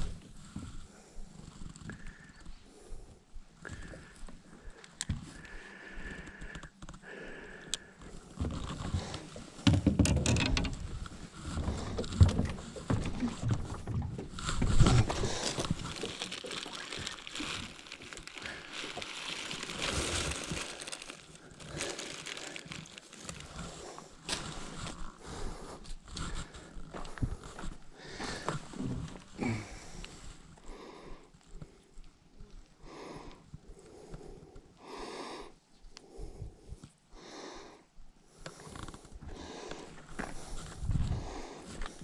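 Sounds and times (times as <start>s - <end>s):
rustling and knocking of gear: 8.4s - 23.7s
dense crackly rustling: 8.4s - 25.2s.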